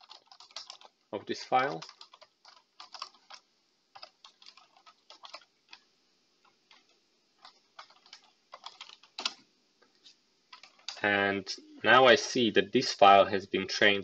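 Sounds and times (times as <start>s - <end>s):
keyboard typing: 0.0s - 1.0s, 1.6s - 9.4s, 10.5s - 11.0s.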